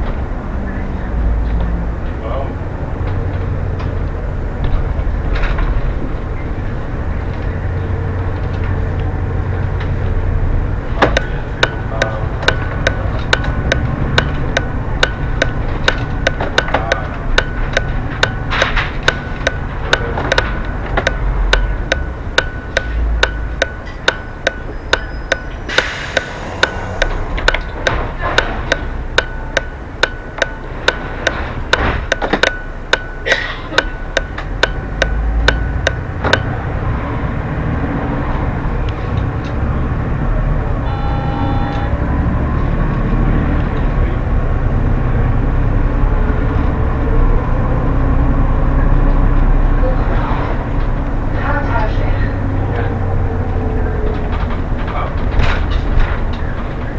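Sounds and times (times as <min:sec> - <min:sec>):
bus engine and road drone: 0:00.0 - 0:56.9
sharp regular ticking: 0:11.1 - 0:36.8
short hiss: 0:25.7 - 0:26.9.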